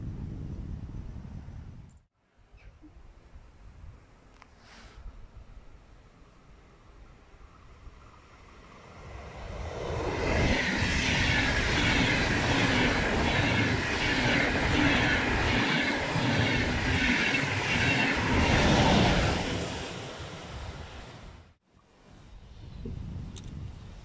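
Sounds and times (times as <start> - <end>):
passenger train passing at speed: 5.6 - 21.6.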